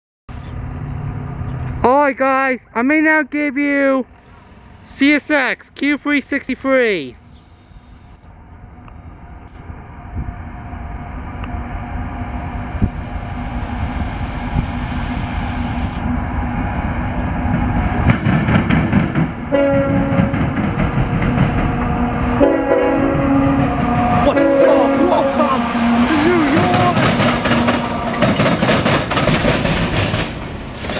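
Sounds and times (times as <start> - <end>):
diesel freight train approaching: 0.3 - 30.9
train air horn blast: 19.5 - 20.4, 22.0 - 28.7.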